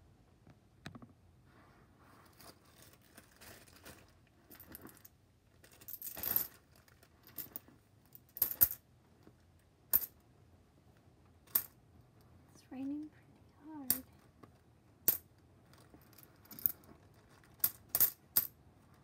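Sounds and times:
plastic bag crinkling: 2.4 - 4.2.

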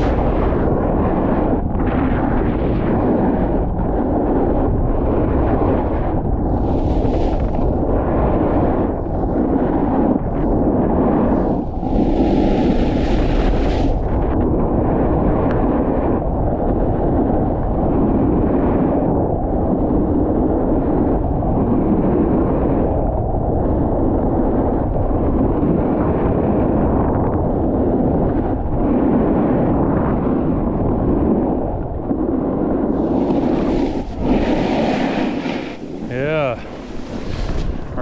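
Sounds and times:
snowboard scraping snow: 0.0 - 14.8, 32.4 - 38.0
wind buffeting microphone: 0.0 - 38.0
hissing scrape of snow: 32.9 - 37.6.

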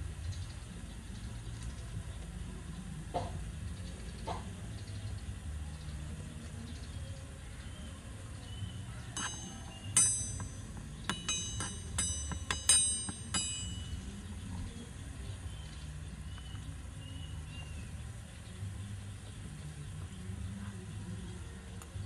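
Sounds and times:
metal utensil clinking on wok: 9.2 - 14.0.

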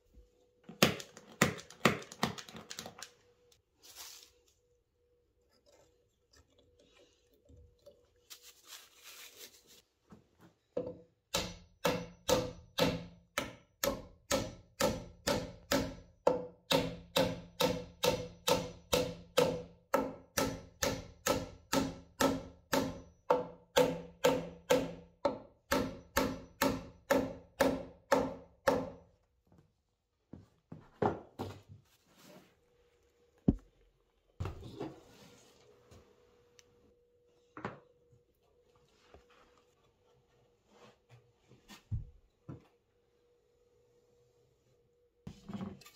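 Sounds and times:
hammer knocking wooden dowels: 10.8 - 29.0.

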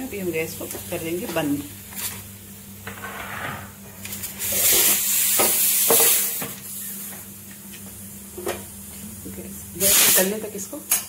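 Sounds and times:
pressure cooker hissing: 4.0 - 7.3, 9.2 - 10.7.

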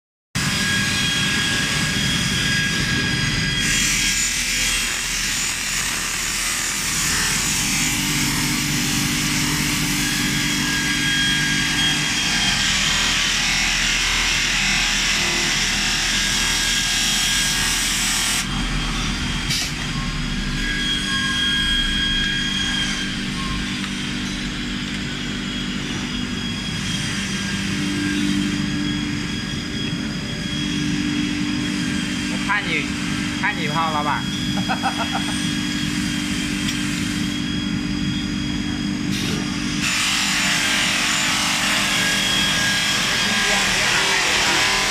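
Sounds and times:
motor hum: 34.1 - 44.9
polishing wheel hissing on metal: 39.0 - 44.9.

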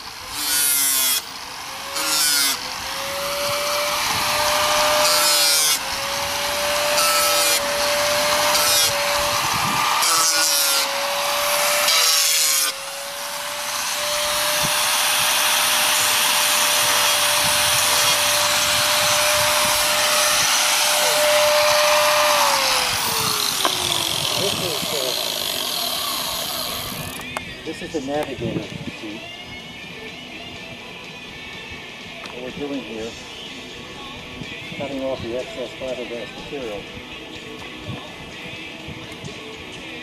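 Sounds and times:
angle grinder grinding fiberglass: 0.0 - 28.1.

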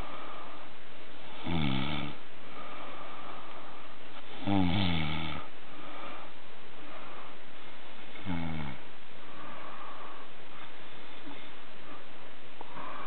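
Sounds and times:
person snoring: 1.3 - 2.2, 4.3 - 6.3, 8.1 - 8.8.

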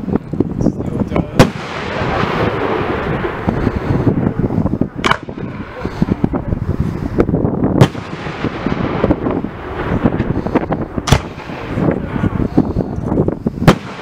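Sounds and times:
sharp firework bangs: 1.2 - 6.4, 7.8 - 12.6, 13.5 - 14.0
firework shells bursting: 1.3 - 7.2, 7.8 - 14.0
firework pops and crackle: 5.0 - 5.6, 11.0 - 11.9, 13.7 - 14.0.

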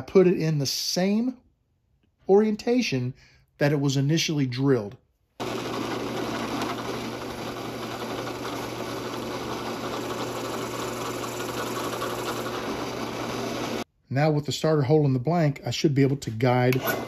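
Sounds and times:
drill press humming: 5.4 - 13.8.

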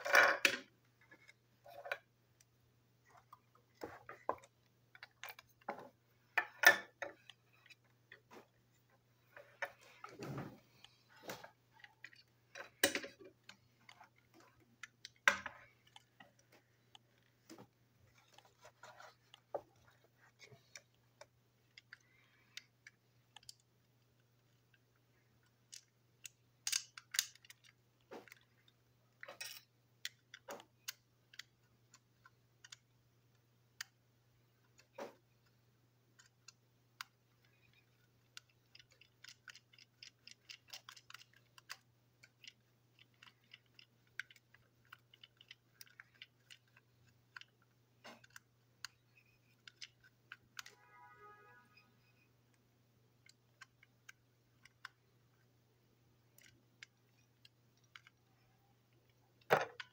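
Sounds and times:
plastic toy parts clicking: 10.8 - 17.5, 18.1 - 34.0, 34.6 - 50.8, 52.1 - 55.4, 56.2 - 58.4, 59.0 - 59.9.

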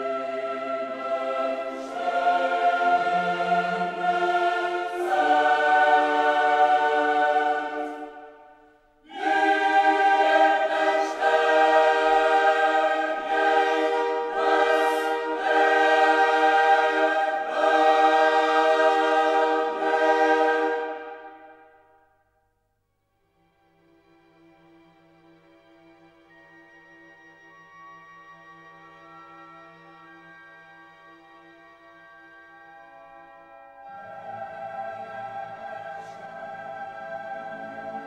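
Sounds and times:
choir singing held chords: 0.0 - 22.1, 33.4 - 38.0.

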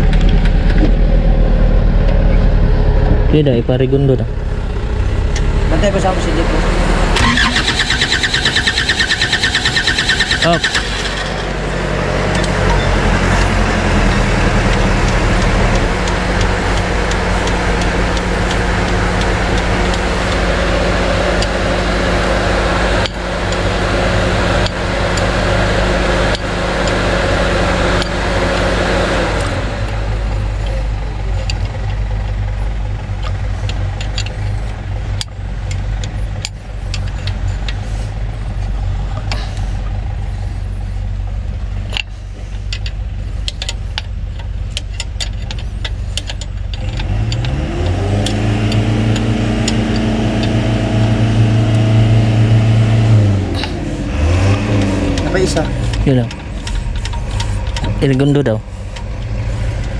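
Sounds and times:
diesel engine running: 0.0 - 59.9
wrench clicking on metal: 41.9 - 50.7.

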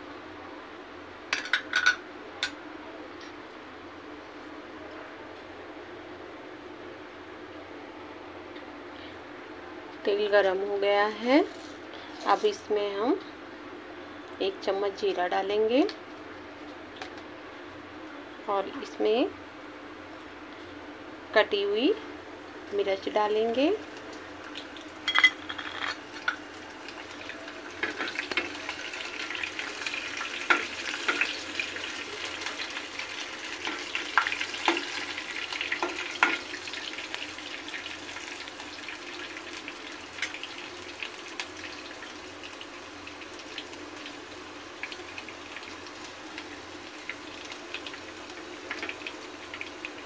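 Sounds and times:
seeds sizzling in hot oil: 26.0 - 50.0.

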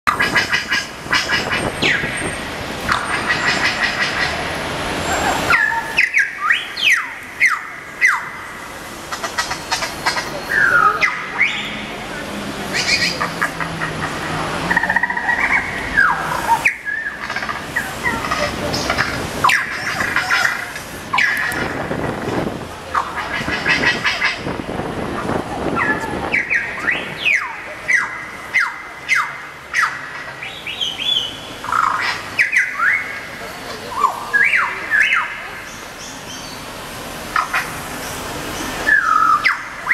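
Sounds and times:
whistled bird chirps from loudspeakers: 26.3 - 29.3, 30.6 - 33.1, 34.0 - 35.3, 38.8 - 39.9
bird-like squawks and whistles: 38.9 - 39.9.

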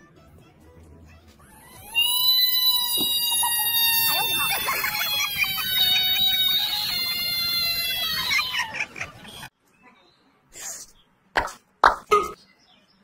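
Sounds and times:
frog distress scream: 1.5 - 8.8.

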